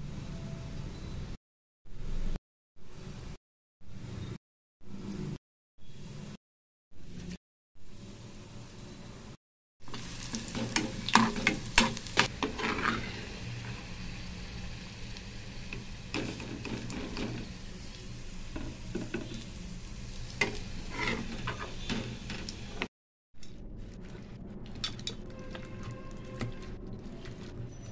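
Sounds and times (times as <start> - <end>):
onions sizzling in oil: 9.8 - 22.9
ladle scraping and clinking pan: 10.5 - 13.3, 20.4 - 22.4.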